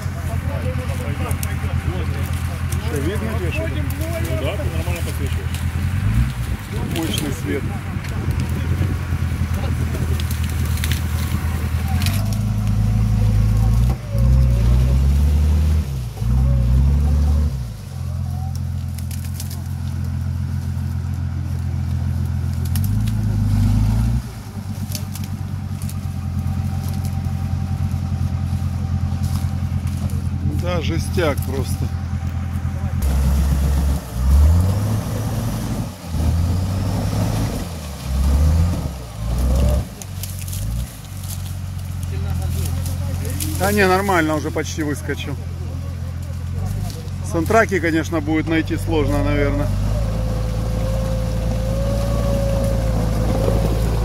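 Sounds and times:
engine revving hard: 0:00.0 - 0:17.8, 0:22.6 - 0:28.4, 0:29.2 - 0:41.4, 0:46.3 - 0:54.0.

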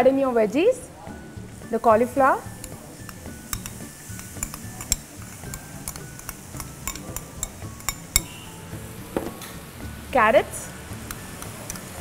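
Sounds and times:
bowl and spatula knocking pan: 0:02.6 - 0:08.4.

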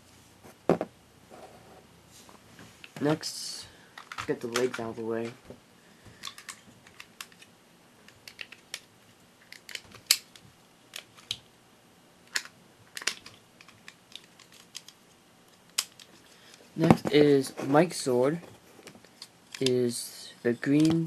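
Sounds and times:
plastic toy pieces clicking: 0:06.2 - 0:07.5, 0:08.1 - 0:10.3, 0:12.3 - 0:15.0.

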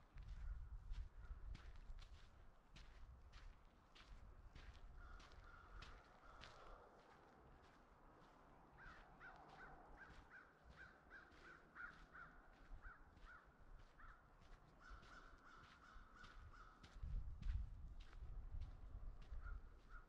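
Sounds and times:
crows cawing: 0:05.0 - 0:07.2, 0:08.7 - 0:17.0.

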